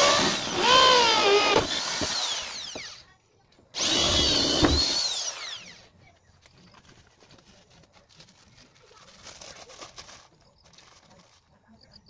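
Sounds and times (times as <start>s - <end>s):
power drill winding down: 0.0s - 3.1s, 3.7s - 5.9s.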